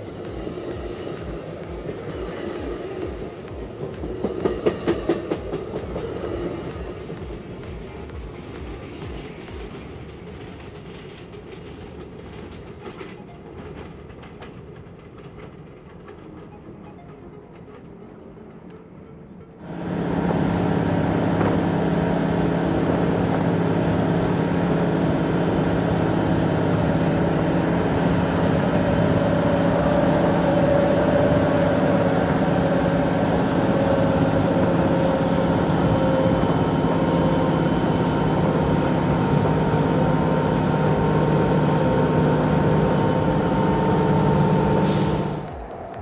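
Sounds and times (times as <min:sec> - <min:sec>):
vehicle running noise: 0:19.4 - 0:46.0.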